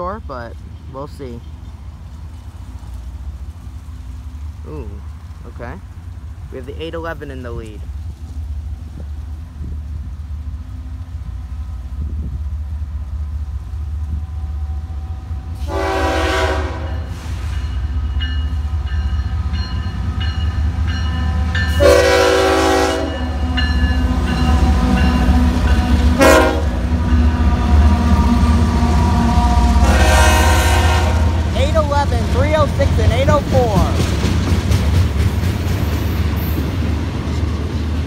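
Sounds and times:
diesel locomotives rumbling: 0:00.0 - 0:38.0
locomotive horn blasts: 0:15.6 - 0:17.3, 0:21.7 - 0:23.4, 0:26.1 - 0:31.5.

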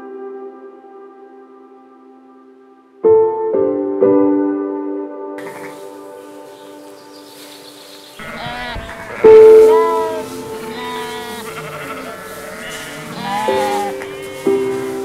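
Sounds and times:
soft background music: 0:00.0 - 0:15.0
sheep and lambs bleating: 0:05.4 - 0:15.0.

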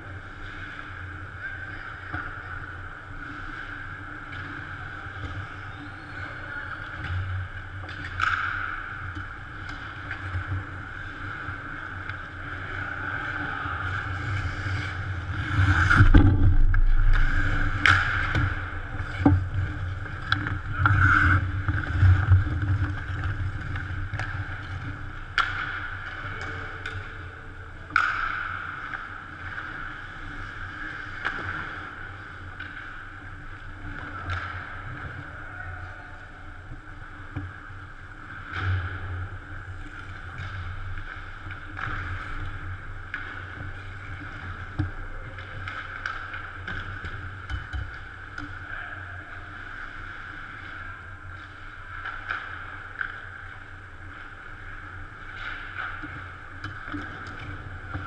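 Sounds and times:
hockey sticks and puck clacking: 0:00.0 - 0:50.0, 0:51.2 - 0:58.0
steady background hum: 0:00.0 - 0:58.0
skate blades scraping ice: 0:12.6 - 0:24.5.

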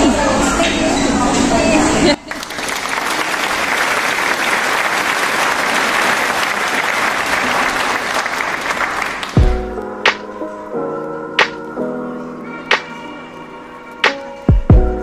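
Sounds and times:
crowd applause: 0:02.2 - 0:09.6.

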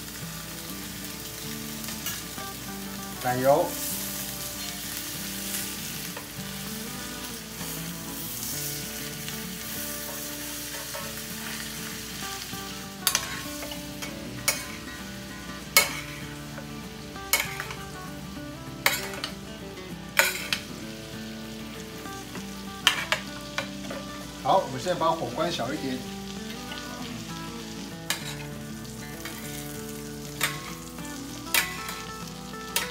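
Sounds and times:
fish sizzling in butter: 0:00.0 - 0:32.9
metal spoon clicking on pan: 0:13.0 - 0:14.8, 0:15.8 - 0:16.1, 0:17.3 - 0:17.8, 0:18.8 - 0:19.4, 0:20.2 - 0:20.6, 0:22.8 - 0:24.0, 0:28.1 - 0:28.5, 0:30.4 - 0:30.8, 0:31.5 - 0:32.1.

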